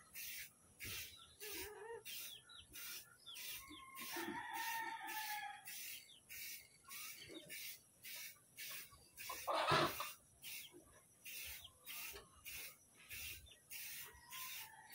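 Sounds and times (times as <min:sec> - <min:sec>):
birds chirping: 0:00.0 - 0:14.9
spray paint can hissing: 0:00.0 - 0:14.9
chicken calling: 0:00.9 - 0:10.6.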